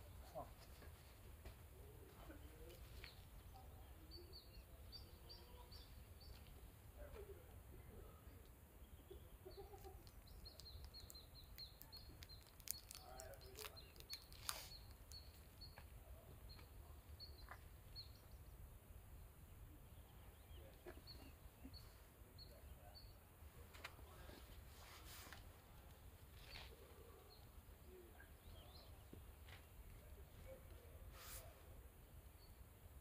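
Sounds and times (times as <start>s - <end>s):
bird chirping: 2.3s - 6.7s, 7.3s - 23.3s, 26.3s - 31.0s.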